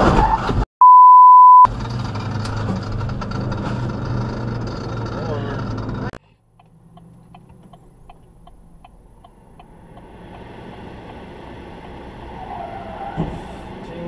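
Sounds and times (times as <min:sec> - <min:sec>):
street traffic: 0:01.6 - 0:14.0
tyre squeal: 0:12.2 - 0:13.7.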